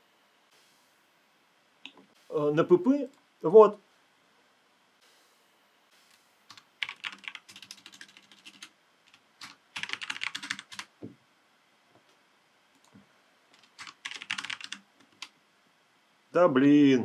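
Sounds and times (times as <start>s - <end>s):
keyboard typing: 6.5s - 10.9s, 13.6s - 15.3s.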